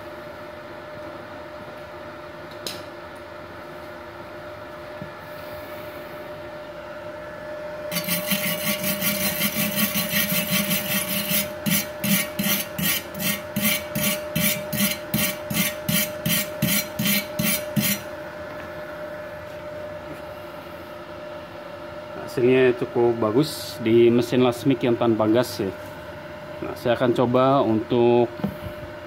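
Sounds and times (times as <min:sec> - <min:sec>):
wire brush scrubbing metal: 0:07.9 - 0:18.1.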